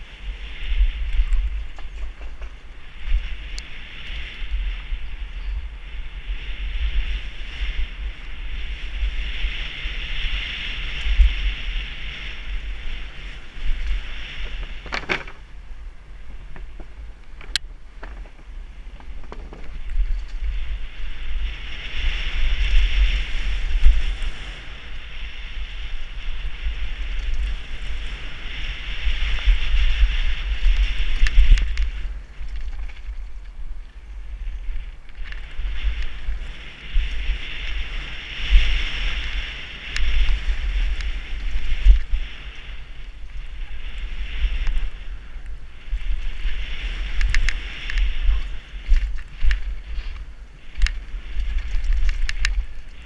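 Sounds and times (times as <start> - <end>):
wind buffeting camera: 0.0 - 53.0
bike clattering over bumps: 1.5 - 3.0, 13.8 - 15.5, 16.5 - 20.5.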